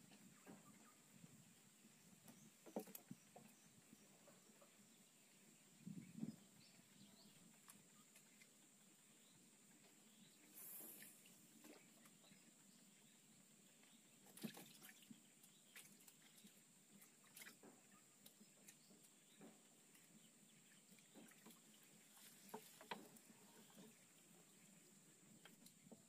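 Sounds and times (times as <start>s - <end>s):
high-pitched hiss: 10.4s - 11.4s.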